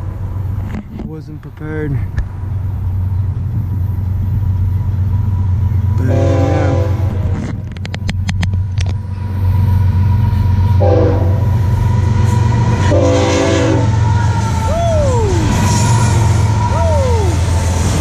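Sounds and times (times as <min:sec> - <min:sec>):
low engine rumble: 0:00.0 - 0:18.0
locomotive air horn blasts: 0:06.0 - 0:07.5, 0:10.7 - 0:14.4.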